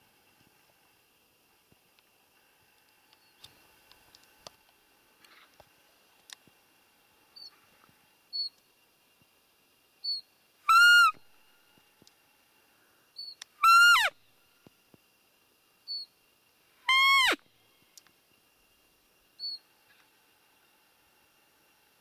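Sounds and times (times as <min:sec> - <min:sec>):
squeaky deer lure whistle: 0:10.0 - 0:11.2, 0:13.2 - 0:14.2, 0:16.9 - 0:17.4, 0:19.4 - 0:19.6.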